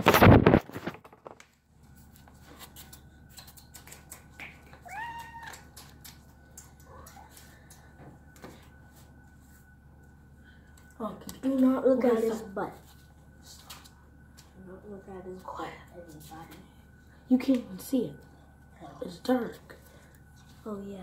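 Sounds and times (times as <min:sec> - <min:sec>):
cat meowing: 0:04.8 - 0:05.7.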